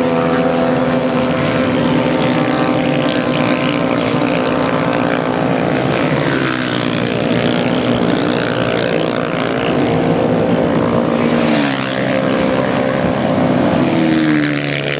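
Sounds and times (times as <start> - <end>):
motorcycle engines racing past: 0.0 - 14.9.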